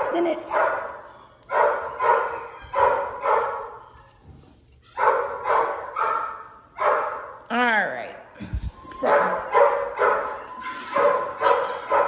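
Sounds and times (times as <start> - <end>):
dog barking: 0.4 - 3.8, 4.9 - 7.4, 9.0 - 12.0.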